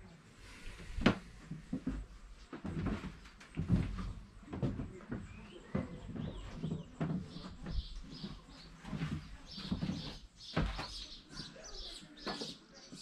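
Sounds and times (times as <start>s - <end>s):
irregular knocks and clunks: 1.0s - 11.1s.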